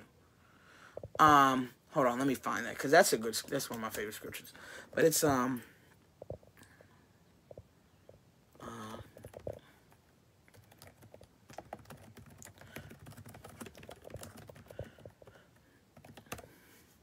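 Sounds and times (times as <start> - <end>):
typing on a keyboard: 9.0 - 15.4, 16.0 - 16.5.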